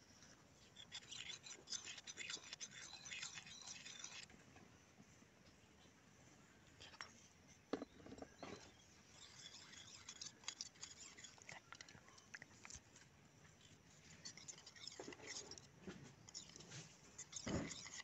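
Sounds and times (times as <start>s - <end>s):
metal spoon scraping steel bowl: 0.7s - 4.3s, 7.8s - 12.0s, 13.7s - 18.0s.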